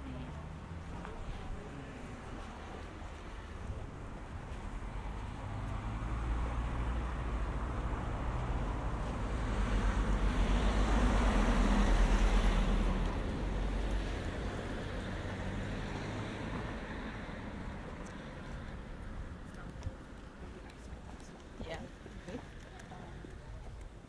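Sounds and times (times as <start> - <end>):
vehicle driving past: 5.1 - 17.8.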